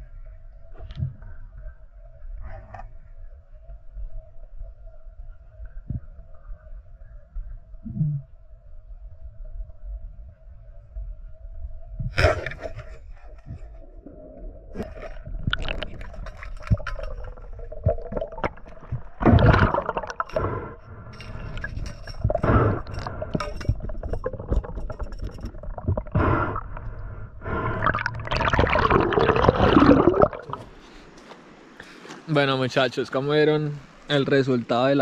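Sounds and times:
water splashing and gurgling: 11.9 - 30.8.

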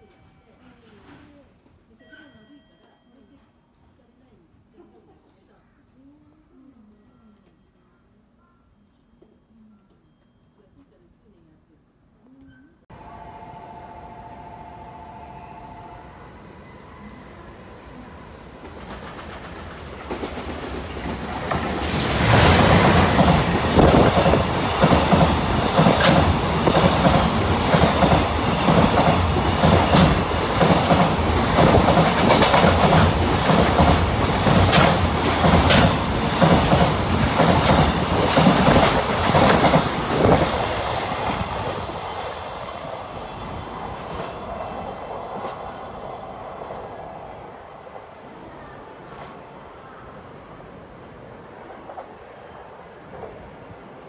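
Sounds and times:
train wheels clickety-clack: 18.6 - 41.8.

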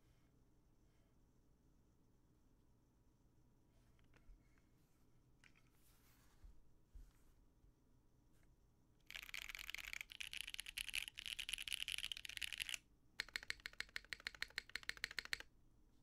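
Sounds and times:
mechanical keyboard typing: 9.1 - 15.5.

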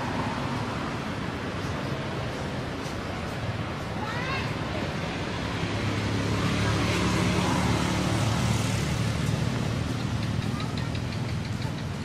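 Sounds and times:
vehicle engine running: 5.7 - 12.0.

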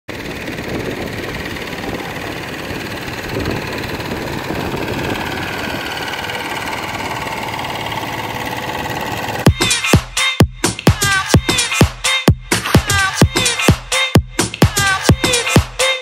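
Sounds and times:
motor running with whine: 0.1 - 9.6.

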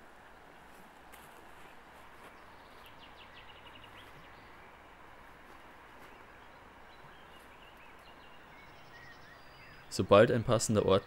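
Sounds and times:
faint bird chirps: 1.6 - 5.1, 6.0 - 11.0.

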